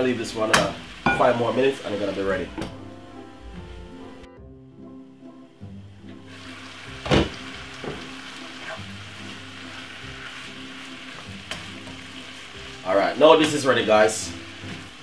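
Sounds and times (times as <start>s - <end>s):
vegetables sizzling in a frying pan: 0.0s - 2.6s, 6.2s - 15.0s.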